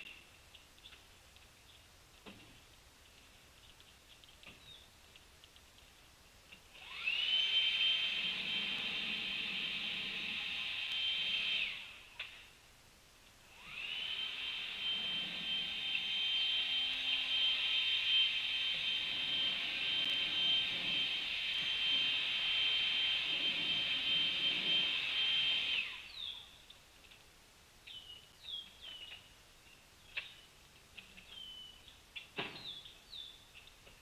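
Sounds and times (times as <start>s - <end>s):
bird chirps: 4.5s - 5.0s, 26.0s - 26.6s, 27.8s - 33.8s
high-pitched motor whine: 6.7s - 12.1s, 13.5s - 26.5s.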